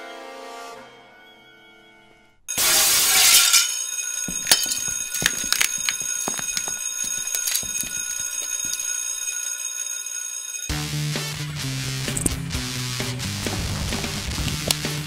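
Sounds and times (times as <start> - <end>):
high ringing tone: 3.3 - 10.7.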